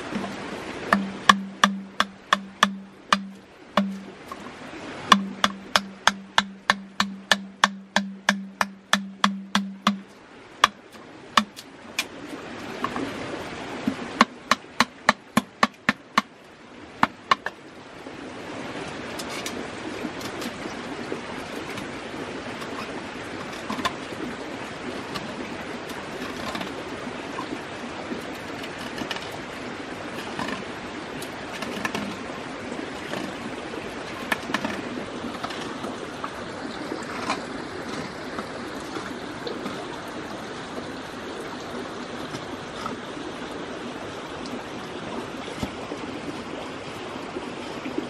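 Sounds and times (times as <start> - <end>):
knife chopping bamboo: 0.9 - 4.1, 5.1 - 10.8, 11.4 - 11.6, 14.2 - 16.3.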